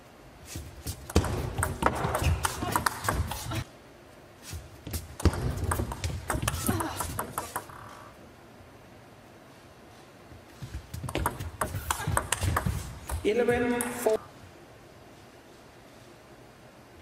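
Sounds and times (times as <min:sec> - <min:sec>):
table tennis ball clicking: 0:05.2 - 0:07.9, 0:11.0 - 0:14.0.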